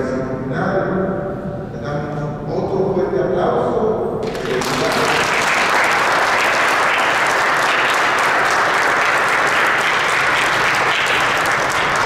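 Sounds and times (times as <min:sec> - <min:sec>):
crowd clapping: 0:04.2 - 0:12.0.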